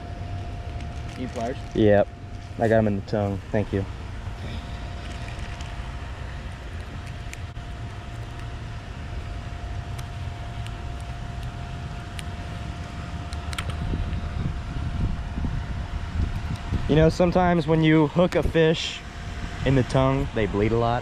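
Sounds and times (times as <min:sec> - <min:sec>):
faint steady hum: 0:00.0 - 0:21.0
low outdoor rumble: 0:00.0 - 0:21.0.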